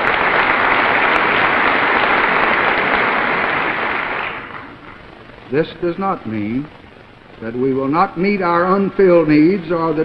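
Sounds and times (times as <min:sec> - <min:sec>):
crowd applauding: 0:00.0 - 0:05.0.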